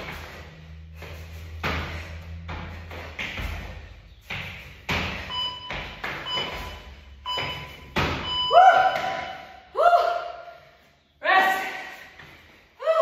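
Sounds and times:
thuds of jumping on floor: 0.0s - 9.4s.

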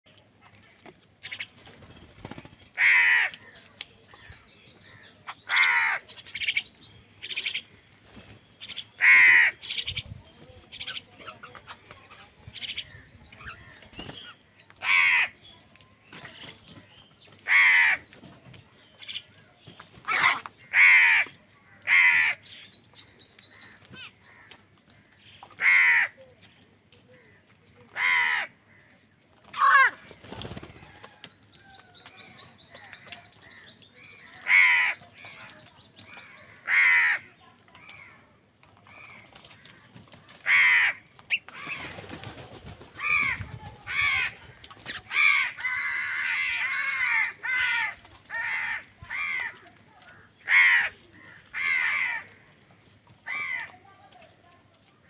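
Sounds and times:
crows cawing: 2.8s - 3.6s, 5.5s - 6.0s, 9.0s - 9.8s, 14.8s - 15.4s, 17.4s - 18.1s, 20.1s - 22.5s, 25.5s - 26.2s, 28.0s - 28.9s, 34.4s - 35.4s, 36.1s - 38.1s, 40.4s - 41.0s, 43.0s - 52.5s, 53.2s - 53.8s.

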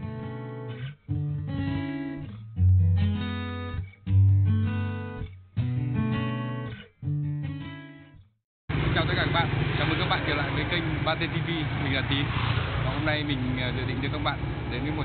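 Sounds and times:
acoustic guitar strumming chords: 0.0s - 8.2s.

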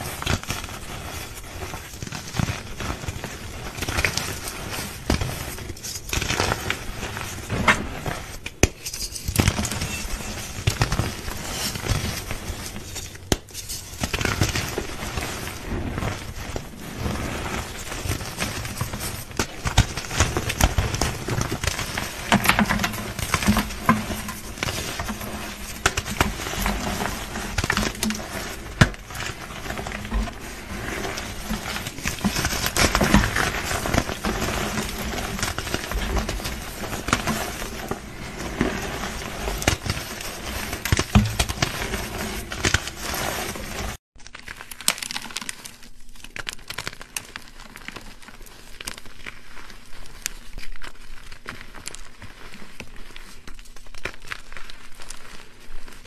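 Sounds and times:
hands crushing chalk: 16.4s - 44.0s.

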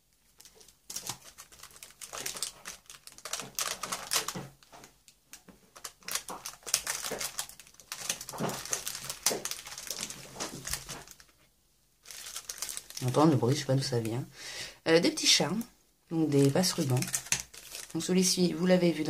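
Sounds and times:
plastic packaging crinkling: 0.2s - 14.2s, 16.3s - 18.4s.

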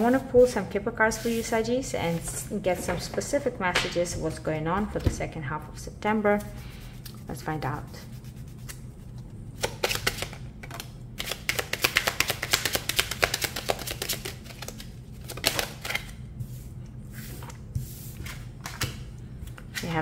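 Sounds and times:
cards being shuffled: 8.6s - 16.2s.

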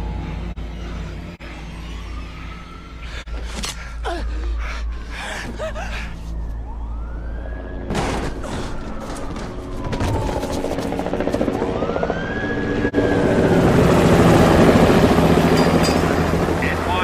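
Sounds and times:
siren wailing: 0.0s - 3.4s, 4.3s - 17.0s
low musical drone: 0.0s - 7.8s
body hitting ground: 7.9s - 10.8s.

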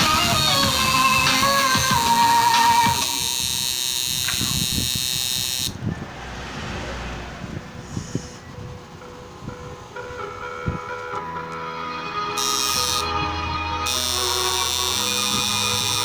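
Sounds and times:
background music: 0.0s - 3.1s, 8.4s - 16.0s
tattoo machine buzzing: 0.0s - 5.8s, 12.3s - 16.0s.

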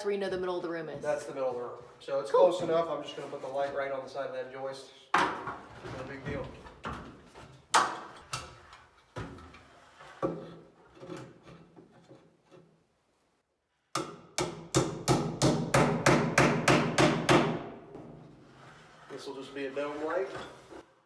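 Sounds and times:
hammer striking nails into wood: 13.9s - 17.8s.

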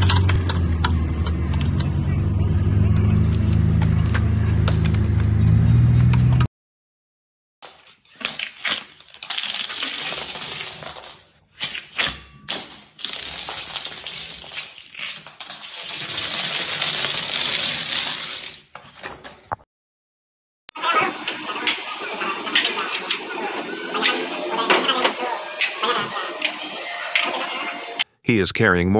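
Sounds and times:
flakes cracking and falling: 8.1s - 11.9s, 12.6s - 18.7s
scraper scraping wall coating: 13.0s - 19.1s.

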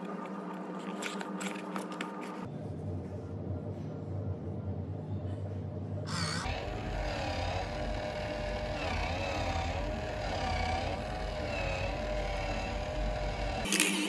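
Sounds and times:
small electric motor whining: 6.1s - 14.0s.

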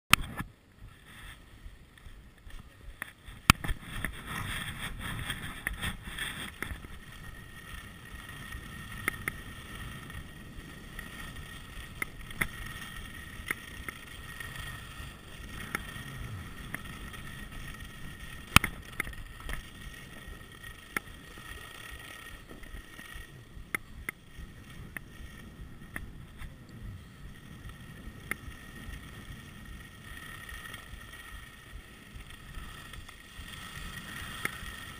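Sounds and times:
wind: 0.1s - 34.9s
skis scraping over snow: 0.2s - 34.9s
sharp clicks and knocks: 18.4s - 19.7s.

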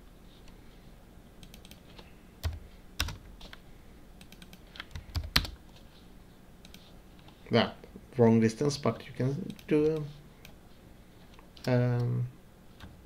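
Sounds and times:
keyboard keys clicking: 4.2s - 5.6s.

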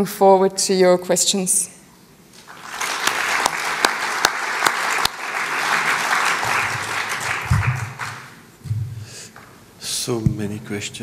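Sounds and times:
audience applauding: 2.4s - 8.4s.

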